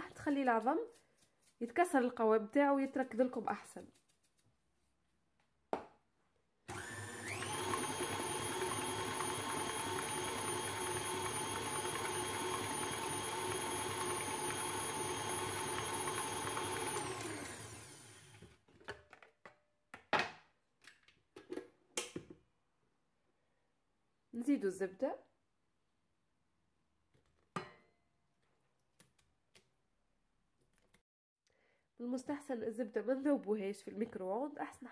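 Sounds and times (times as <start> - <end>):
stand mixer motor running: 6.7 - 18.4.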